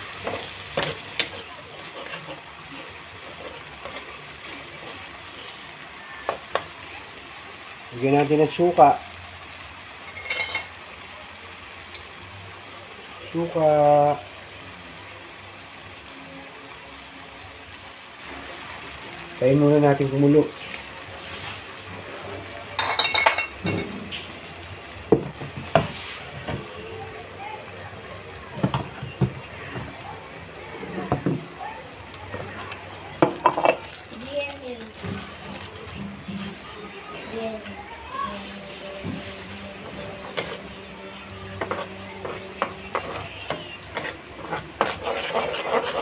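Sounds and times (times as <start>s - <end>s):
metal spatula scraping wok: 0.0s - 5.6s, 10.0s - 10.8s, 38.6s - 46.0s
pan sizzling faintly: 0.0s - 46.0s.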